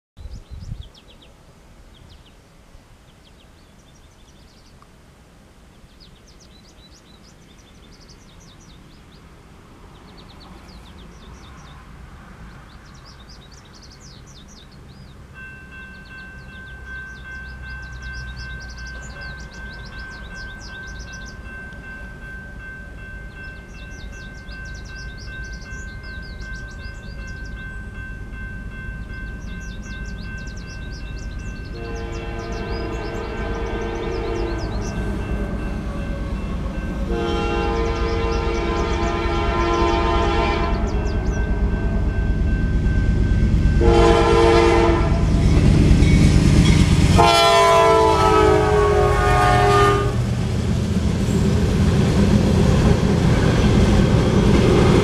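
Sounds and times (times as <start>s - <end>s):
birds chirping: 0.2s - 4.8s, 5.7s - 9.3s, 9.9s - 49.9s
approaching train rumble: 6.0s - 55.0s
crossing warning bell: 14.3s - 50.2s.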